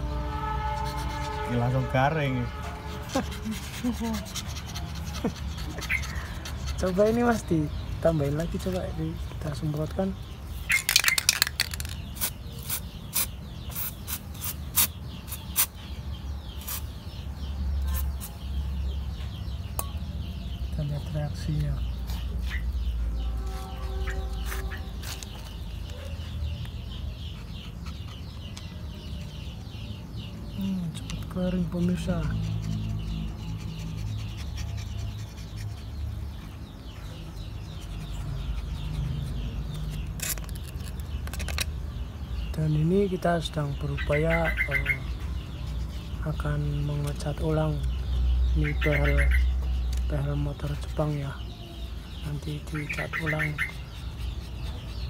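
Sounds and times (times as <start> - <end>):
small birds twittering: 0.0 - 55.0
sharp crackle of peeling film: 23.4 - 25.8, 39.8 - 41.7.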